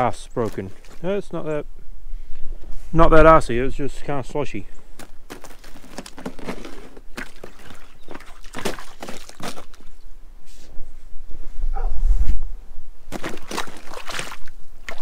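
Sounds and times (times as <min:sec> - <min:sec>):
boot crunching slushy ice: 0:00.3 - 0:01.1, 0:05.0 - 0:10.0, 0:13.1 - 0:15.0.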